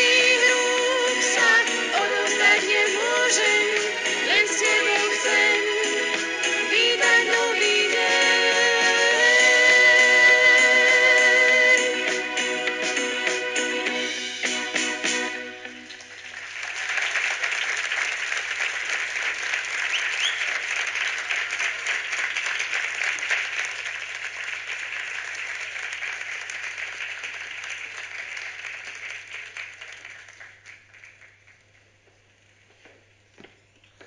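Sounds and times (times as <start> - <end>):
audience applauding: 15.6 - 31.9.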